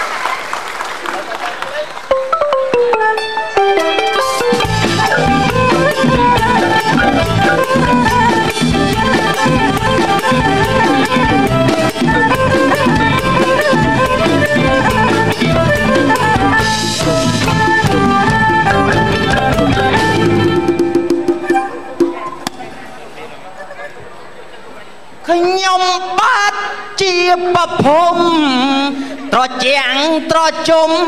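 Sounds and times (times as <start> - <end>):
music with drum beat and melody: 2.2 - 22.6.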